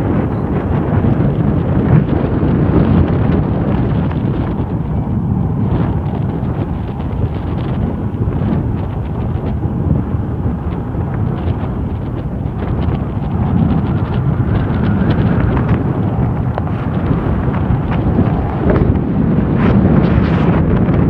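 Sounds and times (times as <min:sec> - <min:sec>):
jet engine noise: 0:00.0 - 0:21.0
wind buffeting microphone: 0:00.0 - 0:21.0.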